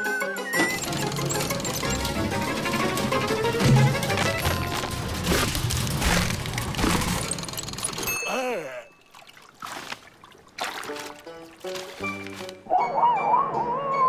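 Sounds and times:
cartoon water splashing: 8.3s - 12.8s.

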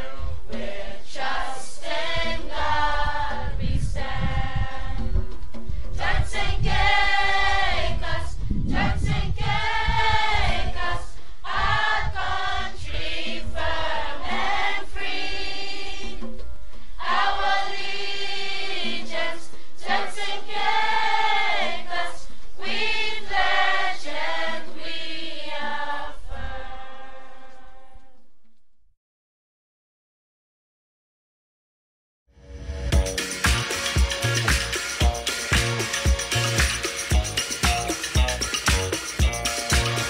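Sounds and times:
choir singing: 0.0s - 5.1s, 6.0s - 16.3s, 17.0s - 28.0s, 33.0s - 40.0s.

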